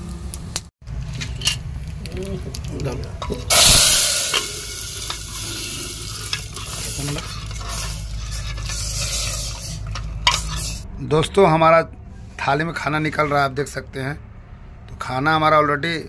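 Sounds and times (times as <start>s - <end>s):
hot oil sizzling: 1.1s - 10.8s.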